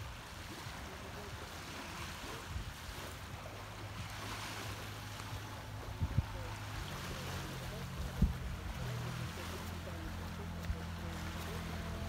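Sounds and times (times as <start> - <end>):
small waves washing on sand: 0.0 - 12.0.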